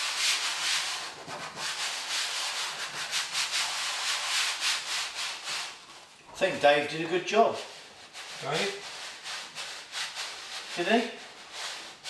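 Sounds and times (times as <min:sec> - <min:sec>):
hands rubbing vinyl cloth: 0:00.0 - 0:12.0.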